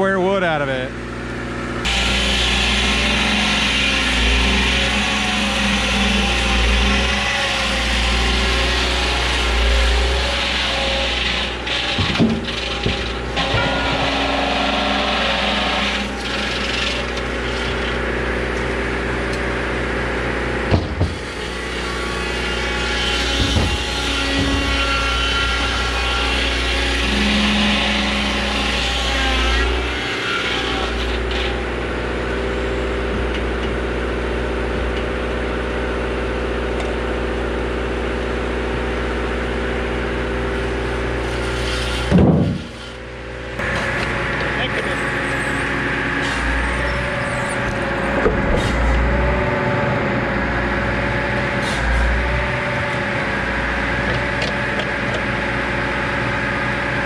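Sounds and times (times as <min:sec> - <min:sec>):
sawmill cutting log: 0:00.0 - 0:57.0
loud thump: 0:20.7 - 0:21.2, 0:23.4 - 0:24.8, 0:42.1 - 0:42.7.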